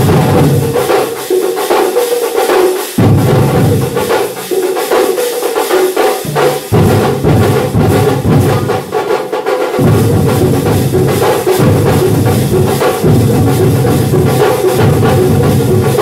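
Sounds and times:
deep bass drum beats: 0.0 - 0.9, 6.2 - 9.2, 9.8 - 16.0
percussion band drumming: 0.0 - 16.0.

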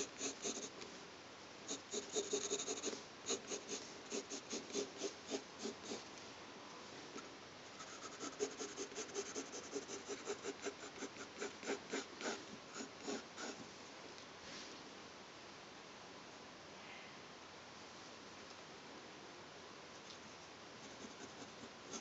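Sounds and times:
pencil scratching on paper: 0.0 - 0.8, 1.7 - 6.1, 7.8 - 13.6, 20.8 - 22.0.

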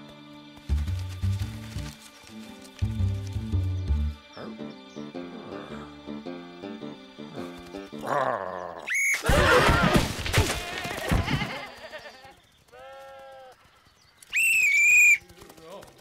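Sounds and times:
shrill whistle blast: 14.3 - 15.2.

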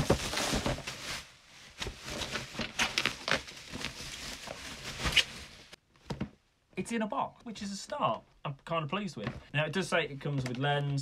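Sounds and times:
bubble wrap crinkling: 0.0 - 5.8
plastic bag rustling: 0.0 - 5.8.

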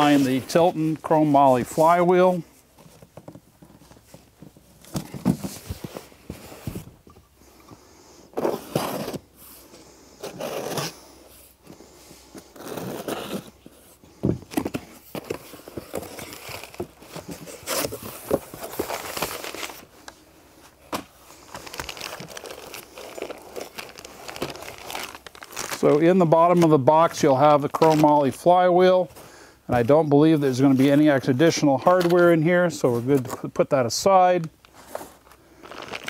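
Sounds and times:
cardboard scraping and rustling: 0.0 - 7.0, 8.3 - 9.6, 10.2 - 11.0, 11.6 - 20.0.

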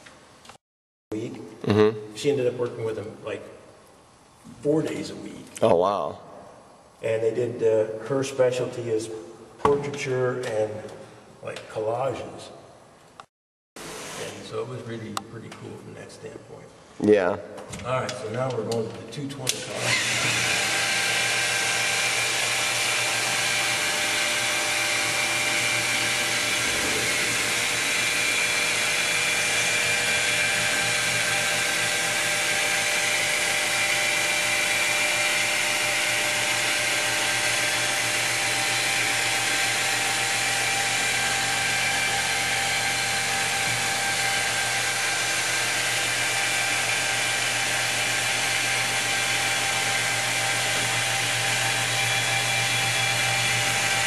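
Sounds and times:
stone polisher motor whine: 19.8 - 54.0.

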